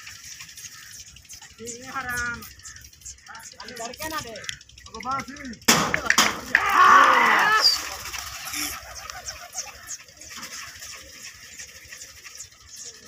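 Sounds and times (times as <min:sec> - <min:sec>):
pigeon wings flapping: 0:05.7 - 0:13.0
person shouting: 0:06.5 - 0:07.8.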